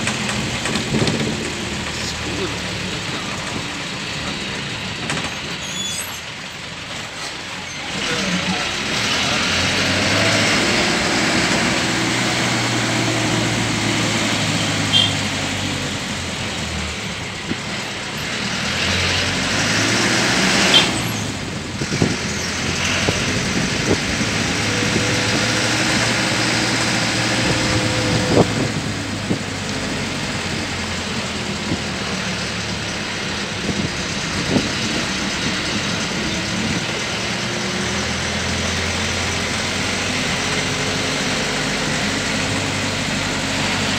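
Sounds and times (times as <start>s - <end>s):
sharp knocks and rattles: 0.0s - 2.0s
vehicle engine running: 0.0s - 5.5s, 7.9s - 43.9s
road noise: 0.0s - 43.9s.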